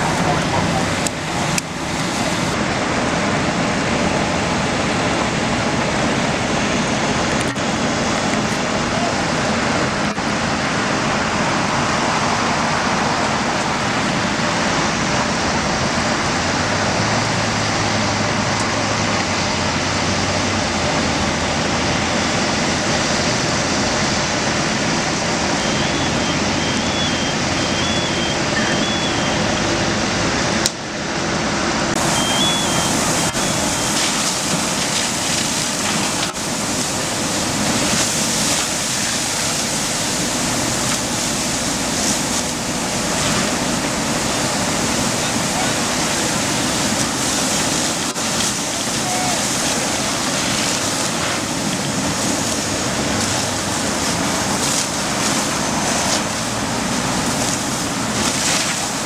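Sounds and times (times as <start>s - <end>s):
fire burning: 0.0s - 59.0s
fire engine motors running: 0.0s - 59.0s.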